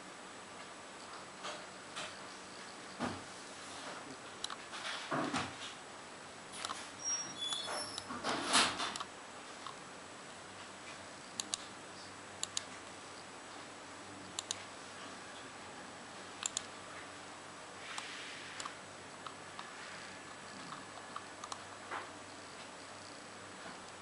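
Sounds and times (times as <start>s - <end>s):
faint steady hiss: 0.0s - 24.0s
mouse buttons clicking: 11.4s - 11.6s, 16.4s - 16.7s, 21.1s - 21.6s.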